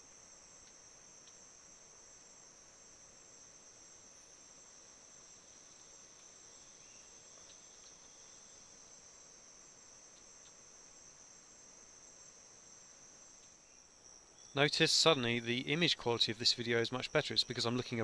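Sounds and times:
tiny ticks: 0.0s - 1.5s, 6.1s - 6.4s, 7.3s - 8.1s, 10.1s - 10.6s, 13.3s - 13.6s
insect chorus drone: 0.0s - 18.0s.

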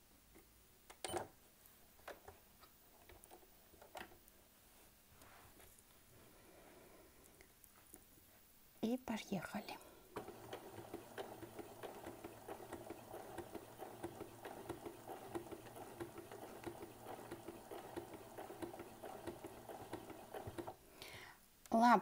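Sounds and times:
sewing machine motor hum: 10.1s - 20.8s
rapid needle clicking: 10.2s - 20.8s.

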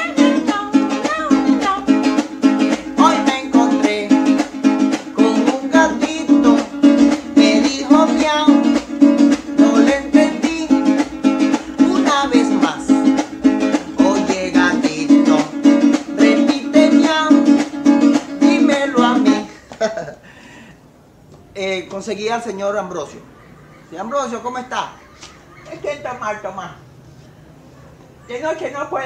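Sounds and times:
acoustic guitar strumming: 0.0s - 19.6s
man singing: 0.0s - 19.6s.

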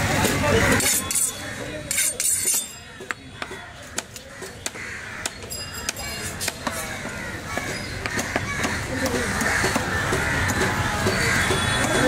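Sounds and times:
background chatter: 0.0s - 12.0s
knife chopping on wooden block: 1.9s - 6.9s, 7.6s - 12.0s.

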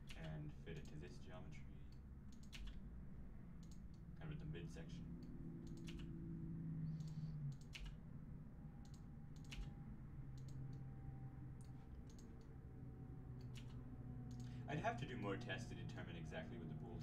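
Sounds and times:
keyboard and mouse clicking: 0.0s - 1.0s, 1.9s - 2.8s, 3.6s - 4.0s, 5.2s - 6.2s, 6.9s - 8.0s, 8.8s - 10.8s, 11.6s - 12.6s, 13.4s - 14.6s
faint low hum: 0.0s - 17.0s.

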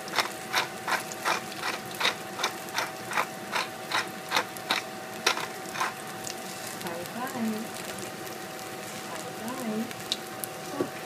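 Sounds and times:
spice mill grinding: 0.0s - 6.3s.

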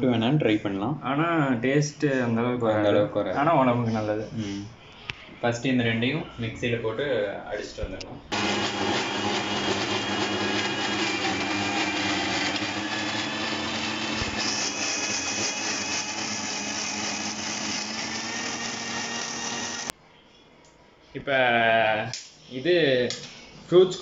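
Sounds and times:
mixer grinder whining: 8.3s - 19.9s.

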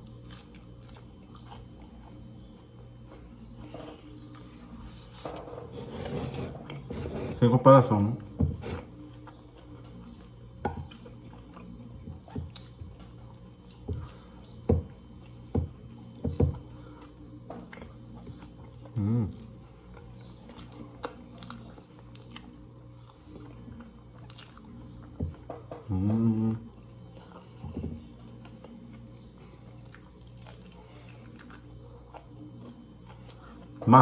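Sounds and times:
chewing and mouth smacks: 0.0s - 3.2s, 8.9s - 25.8s, 26.8s - 33.8s.

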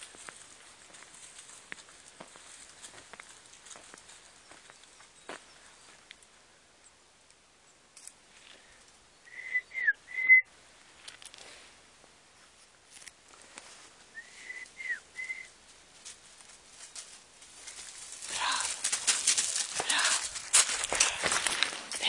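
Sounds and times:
rustling in dry brush: 0.0s - 4.8s, 12.4s - 14.2s, 15.5s - 22.0s
person whistling a call: 9.3s - 10.5s, 14.1s - 15.5s.

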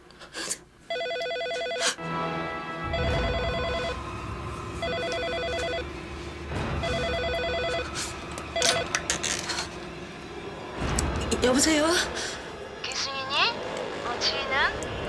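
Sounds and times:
rotary telephone ringing: 0.9s - 1.9s, 4.8s - 5.9s, 8.6s - 8.9s.

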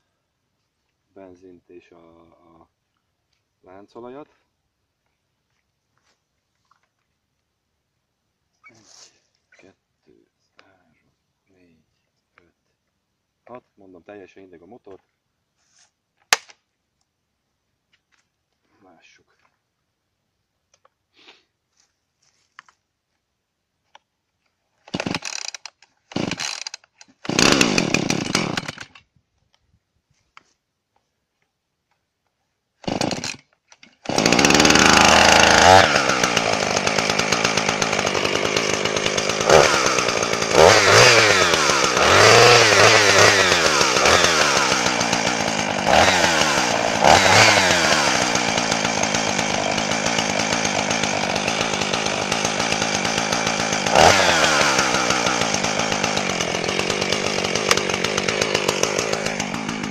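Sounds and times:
chainsaw engine revving: 24.8s - 29.0s, 32.8s - 59.9s
chainsaw pull cord starting: 24.8s - 29.1s, 32.8s - 59.9s.

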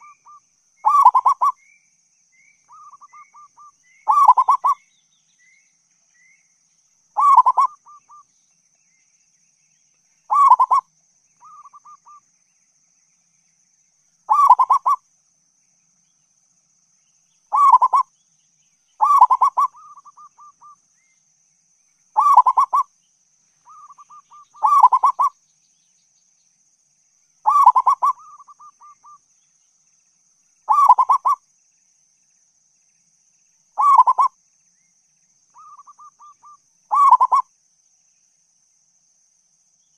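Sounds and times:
dove cooing: 0.0s - 1.5s, 2.7s - 4.8s, 7.2s - 8.2s, 10.3s - 10.8s, 14.3s - 15.0s, 17.5s - 18.1s, 19.0s - 20.8s, 22.2s - 22.9s, 23.7s - 25.4s, 27.5s - 29.2s, 30.7s - 31.4s, 33.8s - 34.3s, 35.6s - 37.4s.

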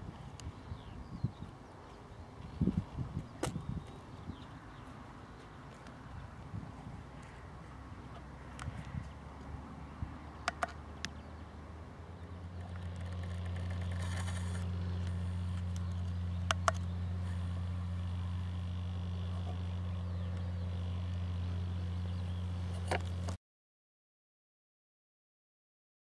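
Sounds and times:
tractor diesel engine droning: 11.4s - 23.3s.

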